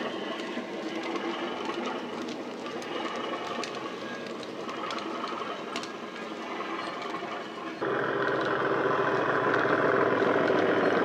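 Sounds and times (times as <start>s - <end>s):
model wagons rolling on track: 0.0s - 11.0s
diesel engine sound from small speaker: 2.7s - 11.0s.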